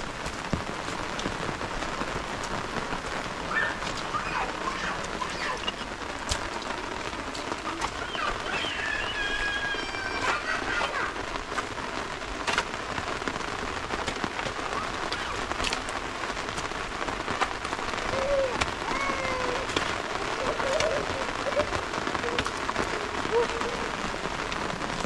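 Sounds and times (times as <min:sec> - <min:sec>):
rain hissing: 0:00.0 - 0:25.0
raindrops ticking: 0:00.0 - 0:25.0.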